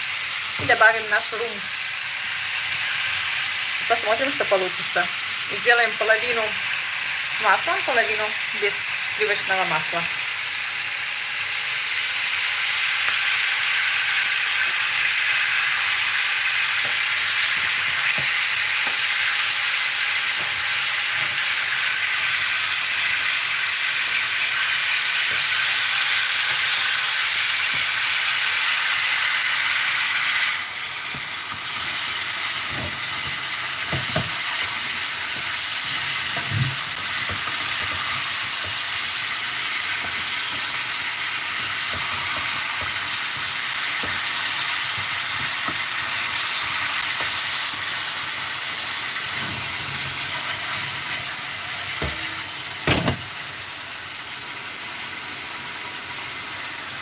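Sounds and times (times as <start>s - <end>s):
fruit sizzling in a frying pan: 0.0s - 57.0s.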